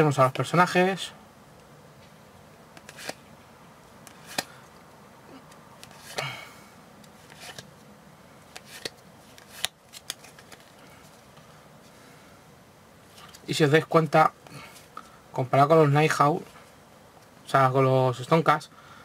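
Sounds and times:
cards being handled: 2.7s - 3.2s, 4.0s - 6.3s, 7.0s - 7.9s, 8.5s - 11.5s.

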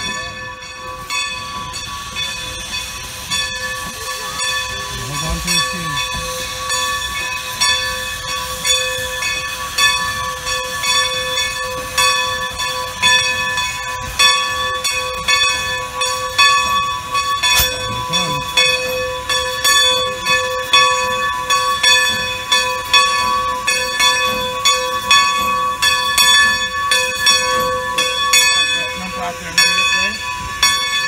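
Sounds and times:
steam hissing: 0.0s - 16.0s
locomotive bell ringing: 0.0s - 31.0s.

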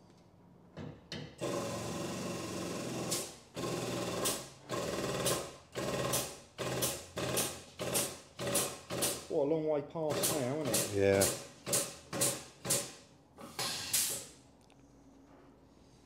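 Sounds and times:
hydraulic pump running: 1.4s - 9.3s.

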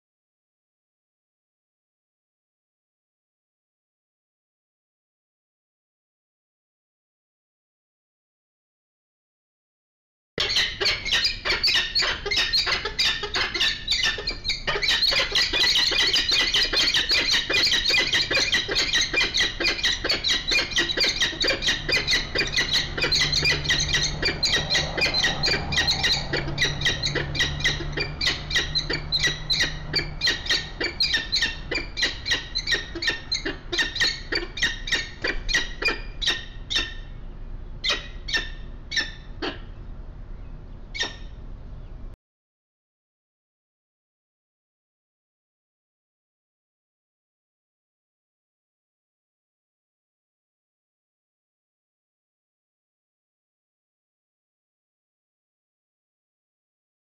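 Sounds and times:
falcons high squeaky calls: 10.4s - 37.1s, 37.8s - 39.7s, 41.0s - 41.4s.

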